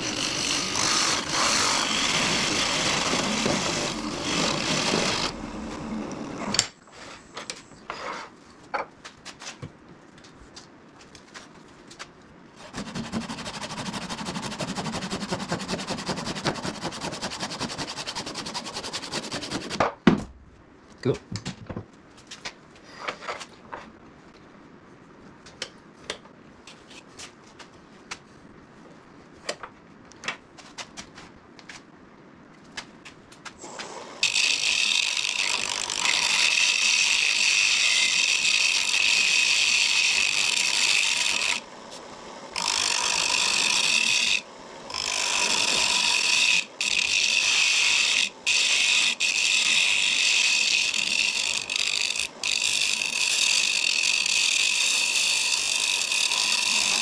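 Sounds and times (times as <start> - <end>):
lathe tool scraping wood: 0.0 - 7.2, 12.6 - 19.8, 33.6 - 57.0.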